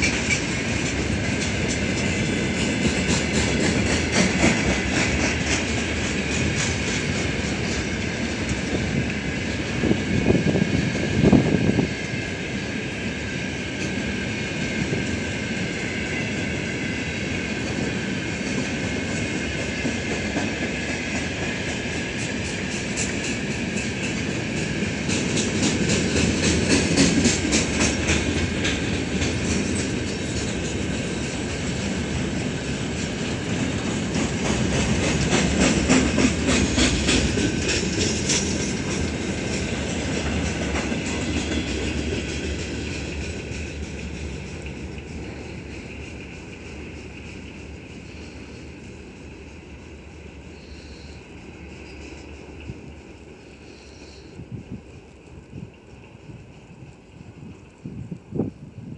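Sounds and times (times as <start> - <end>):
freight train rumbling: 0.0 - 58.9
wheels clattering over rail joints: 17.7 - 48.4.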